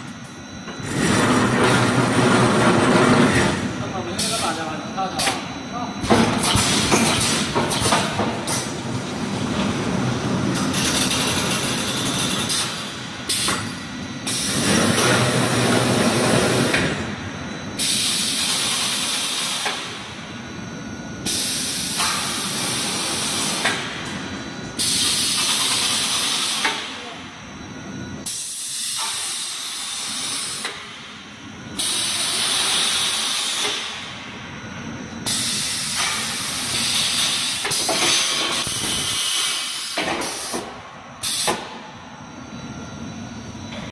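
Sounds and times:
welding machine running: 0:00.0 - 0:20.0, 0:21.2 - 0:27.2, 0:31.8 - 0:34.0, 0:35.2 - 0:41.7.

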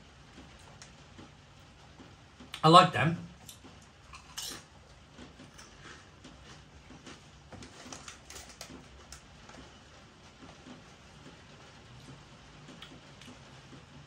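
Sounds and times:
crisps being chewed: 0:03.4 - 0:09.7, 0:12.0 - 0:13.4.

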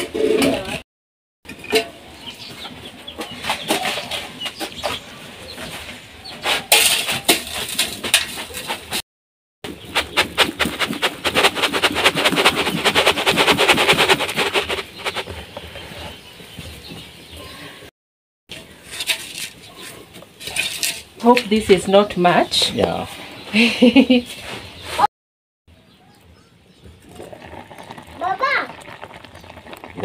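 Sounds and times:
sand pattering on metal pot: 0:09.7 - 0:15.6, 0:27.2 - 0:30.0.

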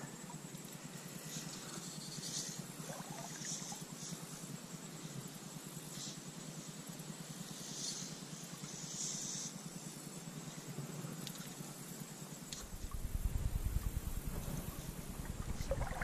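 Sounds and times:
fly line swishing: 0:12.5 - 0:16.0
low rumble: 0:12.6 - 0:16.0.

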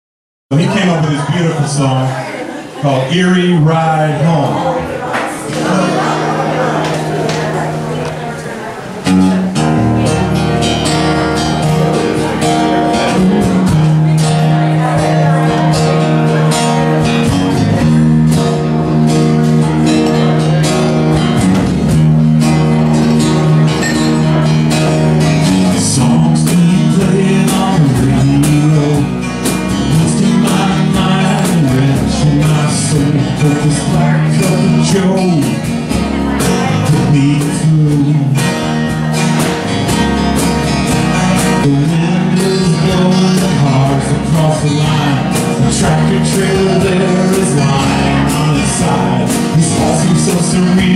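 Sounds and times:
man singing: 0:00.5 - 0:04.9, 0:09.7 - 0:18.6, 0:25.2 - 0:40.0, 0:41.0 - 0:50.9
acoustic guitars strummed: 0:00.5 - 0:50.9.

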